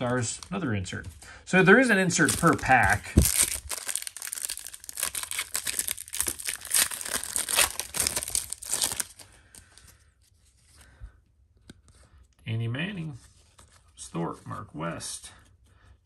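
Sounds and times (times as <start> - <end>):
foil wrapper crinkling: 2.1 - 9.9.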